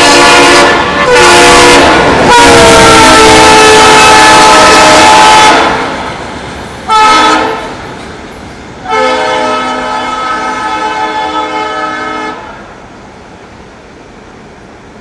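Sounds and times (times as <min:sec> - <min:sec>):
locomotive air horn: 0:00.0 - 0:05.8, 0:06.9 - 0:07.7, 0:08.8 - 0:12.6
train running noise: 0:00.0 - 0:15.0.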